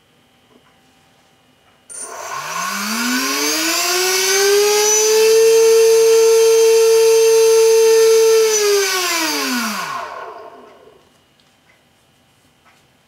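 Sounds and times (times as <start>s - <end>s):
electric motor propeller whine: 1.9s - 11.1s.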